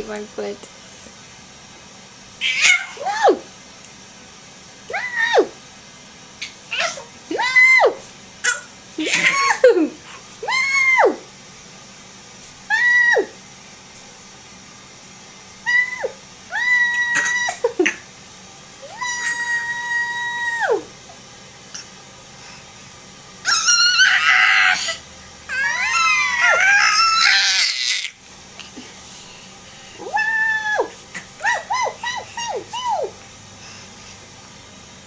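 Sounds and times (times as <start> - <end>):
baby squealing: 2.4 - 3.2, 23.5 - 28.2, 30.0 - 33.1.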